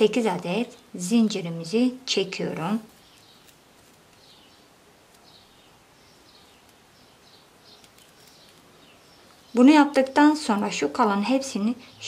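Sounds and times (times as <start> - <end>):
low room hiss: 0.0 - 12.0
tiny ticks: 6.6 - 6.8.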